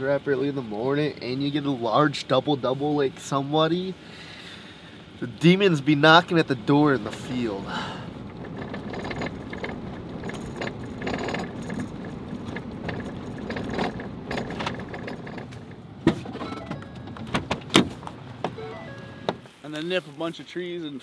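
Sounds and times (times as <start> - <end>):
vehicle cabin rumble: 5.1 - 19.5.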